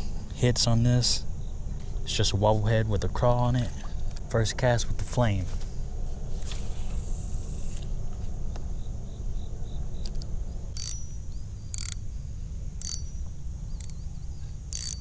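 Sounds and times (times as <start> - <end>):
fishing reel clicks: 10.0 - 11.1, 11.7 - 12.0, 12.8 - 13.2, 13.8 - 14.0, 14.7 - 15.0.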